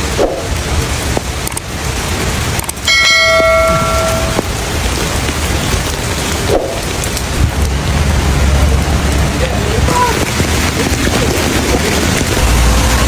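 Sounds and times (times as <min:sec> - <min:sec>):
bell-like chime: 0:02.9 - 0:04.5
low rumble: 0:03.0 - 0:13.0.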